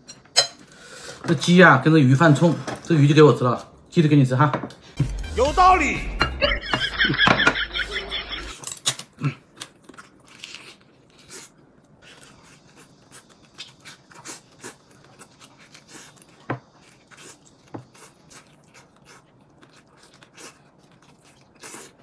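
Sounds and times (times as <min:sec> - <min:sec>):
man chewing and slurping: 0:09.4 - 0:22.0.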